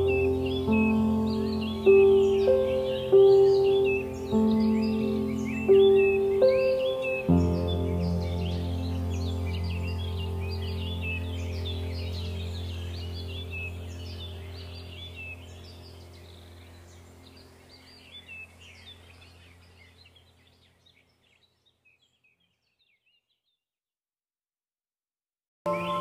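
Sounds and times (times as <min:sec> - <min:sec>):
steady low hum: 0:00.0 - 0:20.4
birds chirping: 0:00.0 - 0:23.6, 0:25.7 - 0:26.0.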